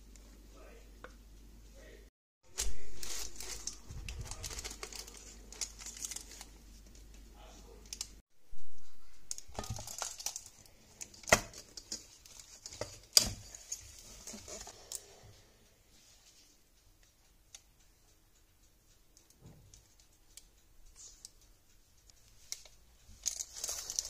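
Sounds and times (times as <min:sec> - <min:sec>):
baking paper crinkling: 0:02.5 - 0:08.2, 0:09.0 - 0:15.0, 0:22.1 - 0:24.0.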